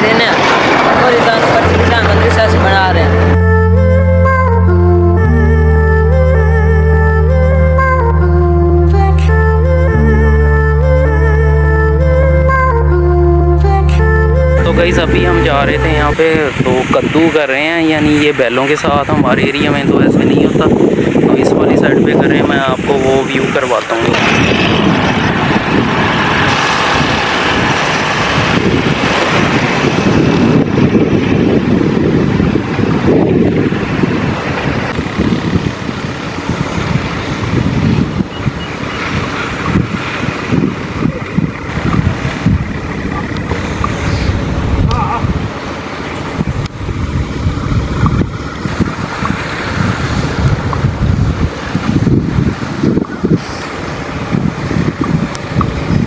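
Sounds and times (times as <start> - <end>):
vehicle driving: 0.0 - 17.0, 24.0 - 52.5
wind buffeting microphone: 13.6 - 56.0.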